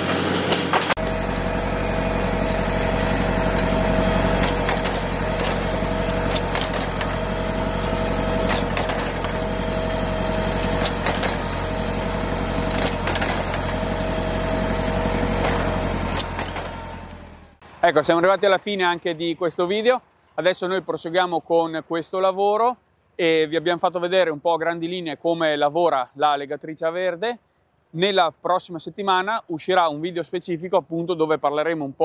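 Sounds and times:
steady mechanical whine: 0:00.0 - 0:18.1
tractor engine running: 0:00.0 - 0:18.3
sharp machine clicks: 0:04.3 - 0:07.2, 0:08.3 - 0:09.4, 0:10.6 - 0:11.7, 0:12.6 - 0:13.8.

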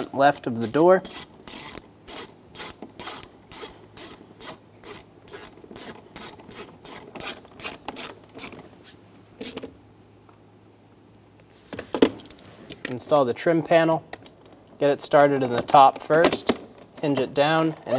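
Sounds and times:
hand ratchet clicking: 0:00.6 - 0:08.6.

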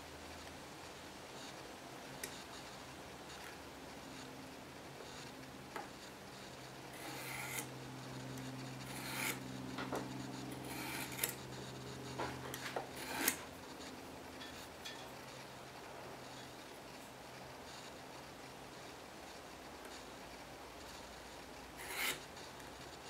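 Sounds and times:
faint steady hum: 0:00.0 - 0:23.0
marking tool scratching wood: 0:06.9 - 0:07.7, 0:08.5 - 0:09.5, 0:10.1 - 0:13.5, 0:21.8 - 0:22.3.

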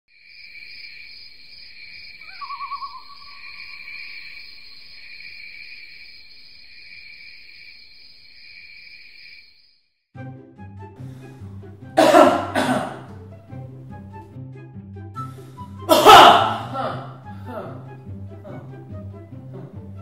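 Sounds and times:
insects chirring: 0:00.1 - 0:10.0
owl call: 0:02.1 - 0:05.1.

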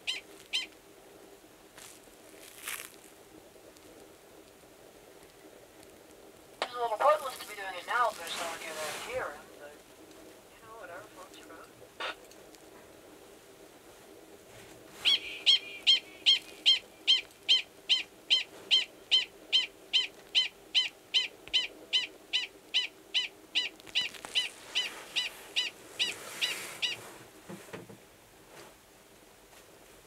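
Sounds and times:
prairie dog high-pitched calls: 0:00.0 - 0:00.8, 0:15.0 - 0:27.0.

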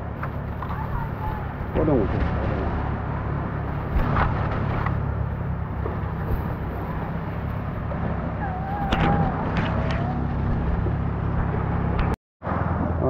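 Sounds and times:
low hum: 0:00.0 - 0:13.0
wind buffeting microphone: 0:00.0 - 0:13.0.

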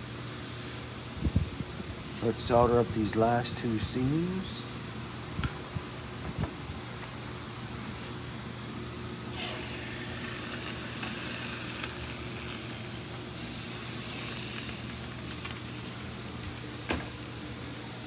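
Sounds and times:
steady low hum: 0:00.0 - 0:18.0
soldering iron sizzling on metal: 0:09.2 - 0:17.4.

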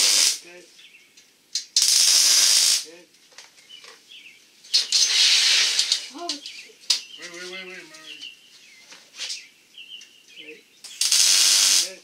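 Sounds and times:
welder arc crackling: 0:00.0 - 0:00.4, 0:01.5 - 0:02.9, 0:10.9 - 0:12.0.

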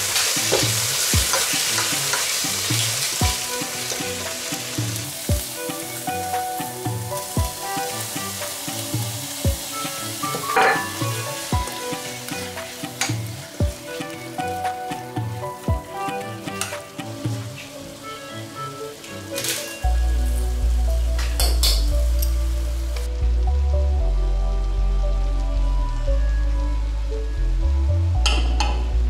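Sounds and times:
paste sizzling in a pot: 0:00.0 - 0:22.9.

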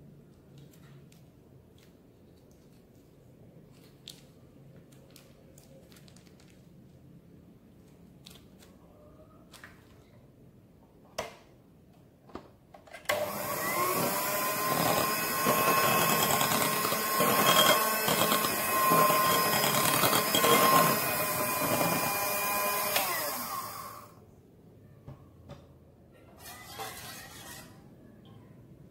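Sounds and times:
electric hand mixer whirring: 0:13.1 - 0:24.1.

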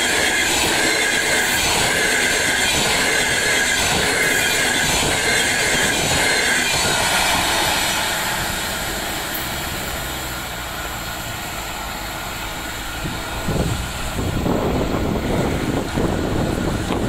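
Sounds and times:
train rumbling on track: 0:00.0 - 0:17.0
wind buffeting microphone: 0:12.9 - 0:17.0.

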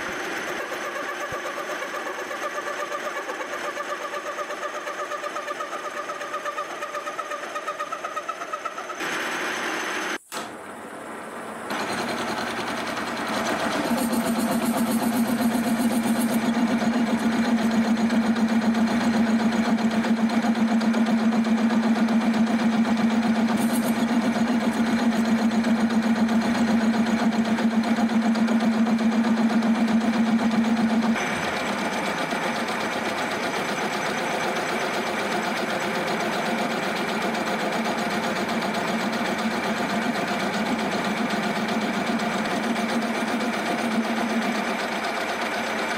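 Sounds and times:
low machine hum: 0:10.5 - 0:36.4
milling machine cutting metal: 0:11.7 - 0:45.9.

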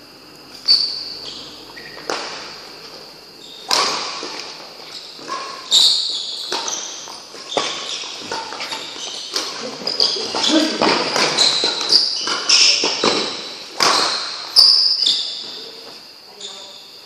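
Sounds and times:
shoes squeaking on court: 0:00.5 - 0:16.8
rackets hitting shuttlecock: 0:01.7 - 0:02.6, 0:03.6 - 0:04.6, 0:05.2 - 0:15.3.

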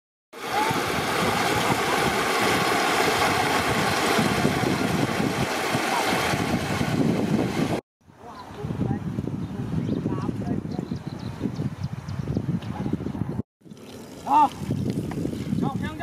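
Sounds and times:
floodwater rushing: 0:00.4 - 0:07.8.

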